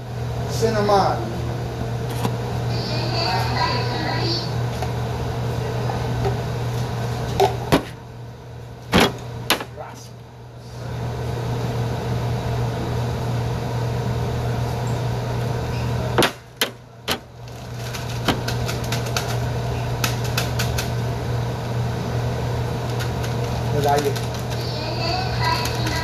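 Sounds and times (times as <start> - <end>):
mechanical hum with hiss: 0.0 - 26.0.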